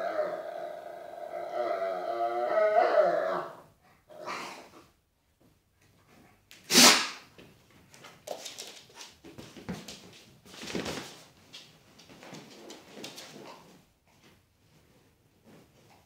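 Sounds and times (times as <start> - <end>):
dogs scuffling: 7.3 - 16.0.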